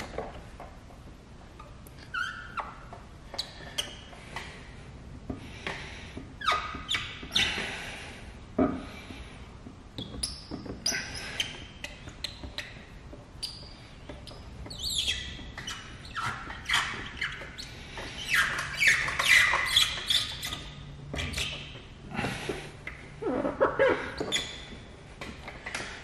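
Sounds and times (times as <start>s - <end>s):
squeegee squeaking on wet film: 13.4s - 20.7s.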